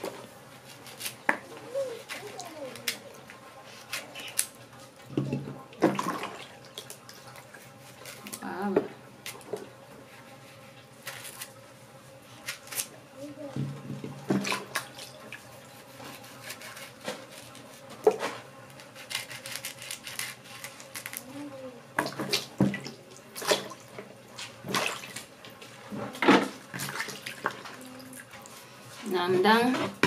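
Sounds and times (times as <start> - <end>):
knife cutting okra: 15.8 - 17.8.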